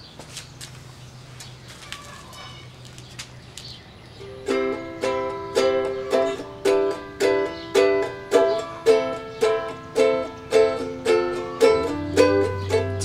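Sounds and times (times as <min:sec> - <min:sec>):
ukulele strumming: 0:04.2 - 0:13.0.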